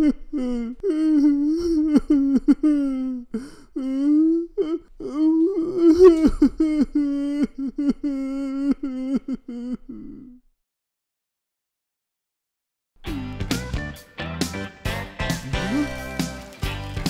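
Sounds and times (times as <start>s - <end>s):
cartoon voice babbling: 5.9s - 6.3s.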